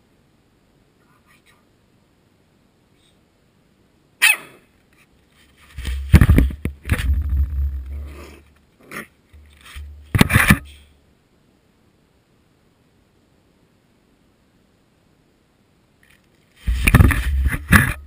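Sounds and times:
puppy barking and yipping: 4.2 - 4.6
scuffling against microphone: 5.0 - 10.8, 16.0 - 18.0.

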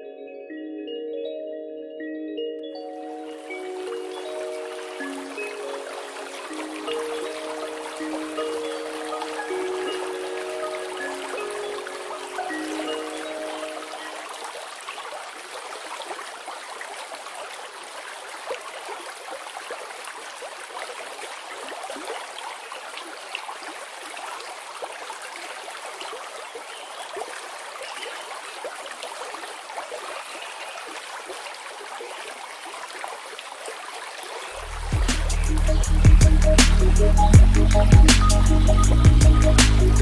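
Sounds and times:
river rushing: 2.8 - 40.0
music with low beat: 34.6 - 40.0.

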